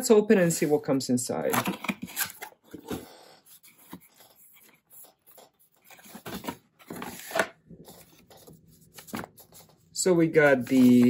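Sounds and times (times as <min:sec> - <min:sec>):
cardboard scraping and rustling: 0:05.8 - 0:09.8.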